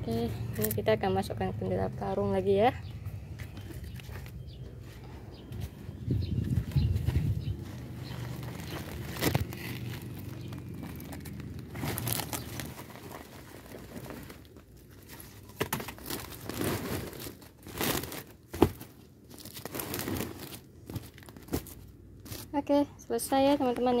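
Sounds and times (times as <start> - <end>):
plastic sack crinkling: 7.0 - 22.6.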